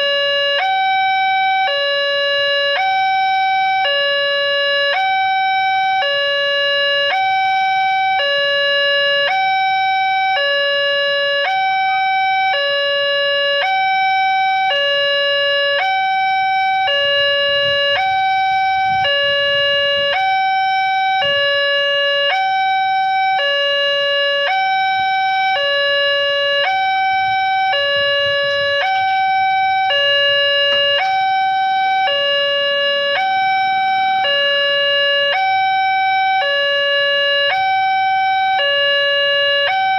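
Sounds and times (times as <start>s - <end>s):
level crossing two-tone alarm: 0.0s - 39.9s.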